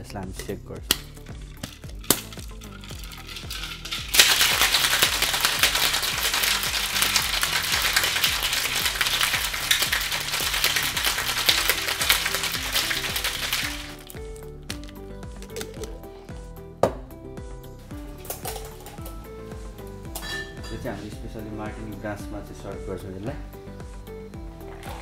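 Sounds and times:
background music: 0.0 - 25.0
sharp clinks: 0.9 - 5.1
ice rattling in cocktail shaker: 0.9 - 15.9, 18.2 - 19.2.

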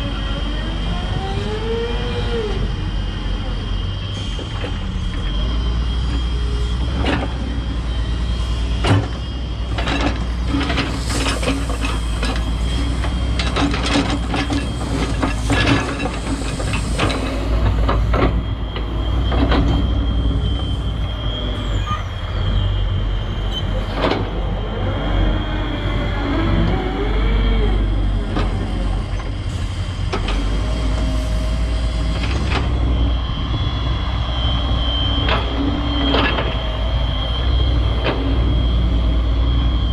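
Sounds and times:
excavator diesel engine rumbling: 0.0 - 39.9.

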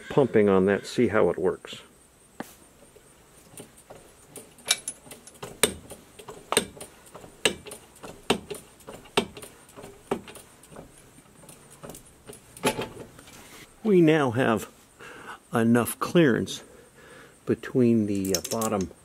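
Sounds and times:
foot pump clicking: 3.4 - 13.4.

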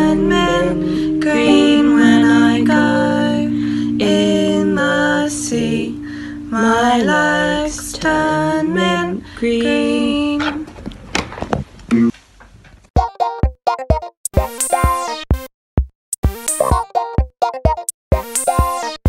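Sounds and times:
electric guitar: 0.0 - 6.3
woman singing slow song: 0.0 - 10.7.

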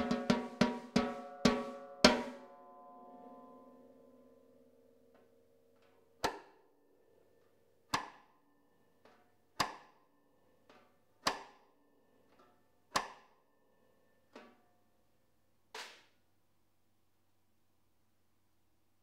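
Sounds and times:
soft snare drum strokes: 0.0 - 2.5, 15.7 - 16.1
snare drum rim clicks: 15.7 - 16.1.

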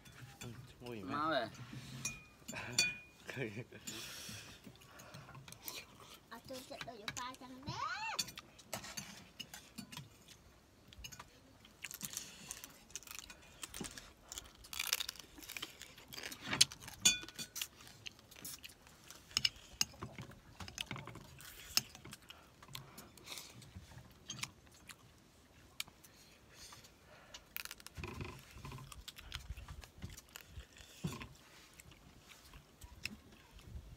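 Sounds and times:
chewing and crunching shell: 0.1 - 33.9
ringing metal clinks: 2.0 - 3.2.

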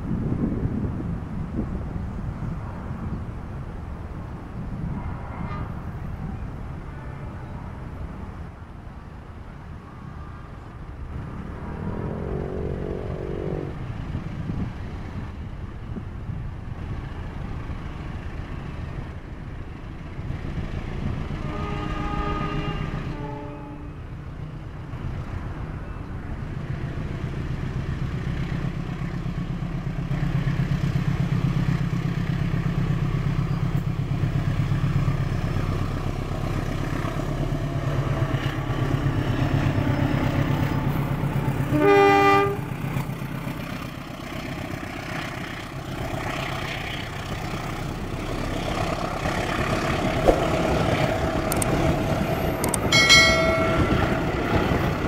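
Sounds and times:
locomotive engine rumbling: 0.0 - 55.0
locomotive horn blast: 12.1 - 14.0, 21.4 - 24.2, 40.9 - 42.8.

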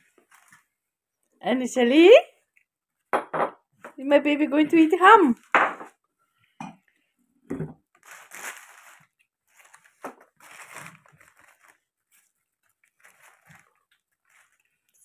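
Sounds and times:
paper and foil wrapping crinkling: 0.0 - 0.7, 7.9 - 15.0.

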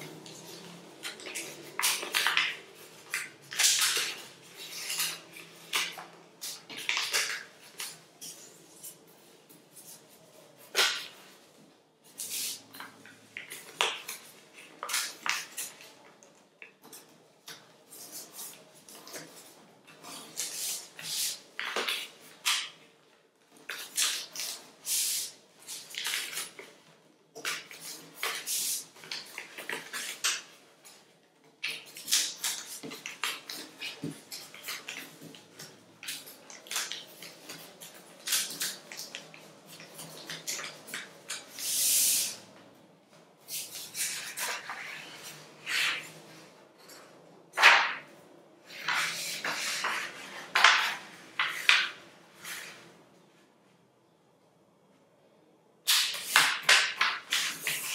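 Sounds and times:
paper rustling and crinkling: 0.1 - 16.2, 23.6 - 41.8, 43.4 - 46.5, 47.5 - 52.9, 55.9 - 57.9.

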